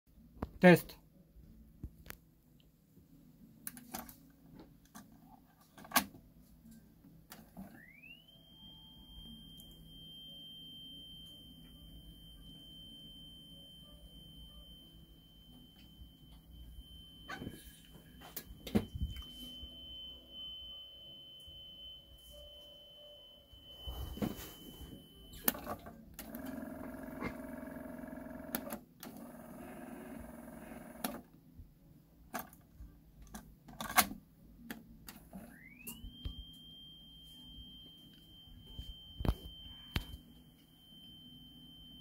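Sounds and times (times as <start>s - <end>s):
rising then steady high tone: 7.6s - 25.4s.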